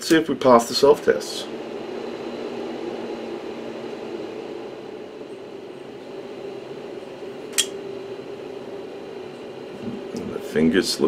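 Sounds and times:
cooling fan whirring: 0.0s - 11.0s
sharp click: 7.5s - 7.8s.

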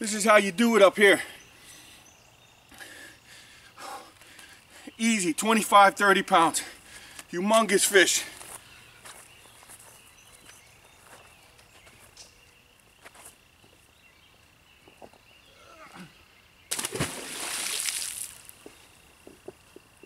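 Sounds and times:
fish splashing into water: 16.7s - 18.5s.

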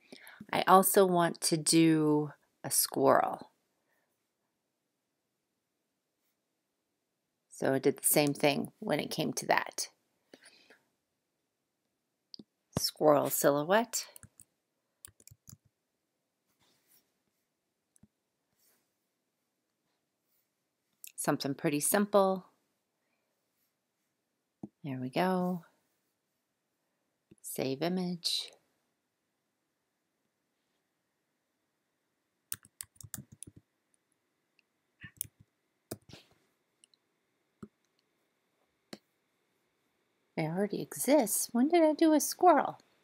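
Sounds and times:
faint keyboard typing: 14.0s - 15.8s, 32.5s - 33.7s, 35.0s - 36.2s.

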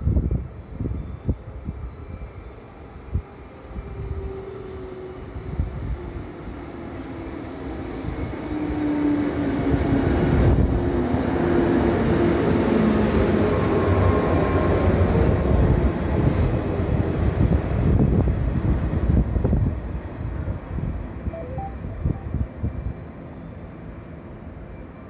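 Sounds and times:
low tones sliding down: 21.4s - 22.5s.

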